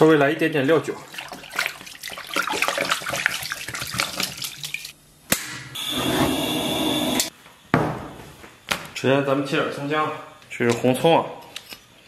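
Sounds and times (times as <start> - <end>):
liquid pouring and splashing: 0.9 - 5.0.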